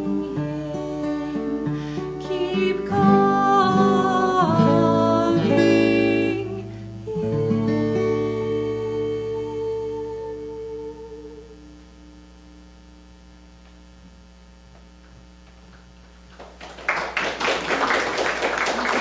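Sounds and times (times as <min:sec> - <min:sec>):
person singing: 0:00.0 - 0:11.7
acoustic guitar chord: 0:00.0 - 0:12.2
electrical hum: 0:00.0 - 0:19.0
audience clapping: 0:16.3 - 0:19.0.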